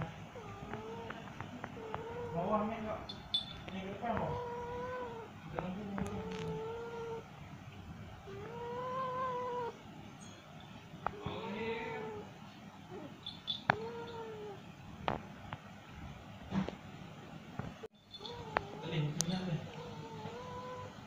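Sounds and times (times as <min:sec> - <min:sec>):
cat yowling: 0:00.4 - 0:03.0, 0:04.0 - 0:07.3, 0:08.2 - 0:09.8, 0:11.0 - 0:14.7, 0:18.1 - 0:21.0.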